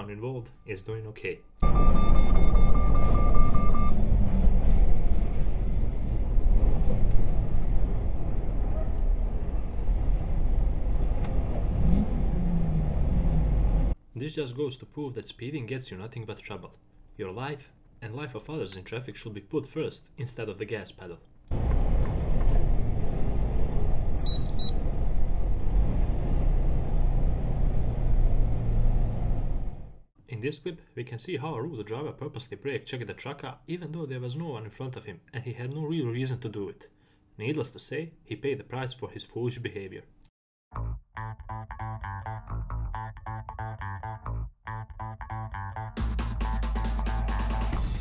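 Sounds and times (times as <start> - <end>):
rapid electronic beeping: 1.6 - 4.1
truck road rumble: 3.4 - 14.0, 21.6 - 30.0.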